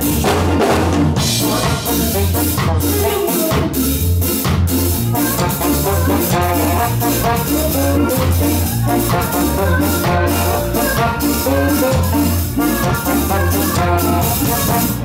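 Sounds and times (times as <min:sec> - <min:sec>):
trombone: 0:00.0 - 0:04.1, 0:04.9 - 0:15.0
bass line: 0:00.0 - 0:15.0
drum kit: 0:00.0 - 0:15.0
saxophone: 0:05.0 - 0:15.0.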